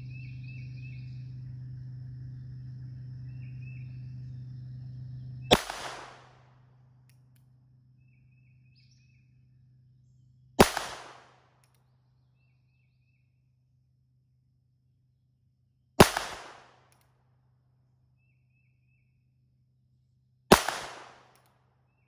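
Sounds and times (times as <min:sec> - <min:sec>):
revolver shots: 0:05.5 - 0:06.3.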